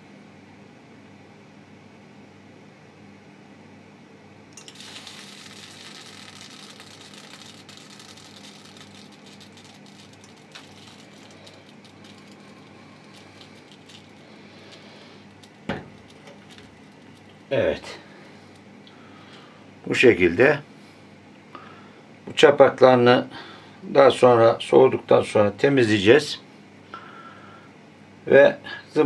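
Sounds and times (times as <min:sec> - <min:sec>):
steady background hum: 0:00.0 - 0:29.0
molten lead sizzling on wood: 0:04.6 - 0:18.6.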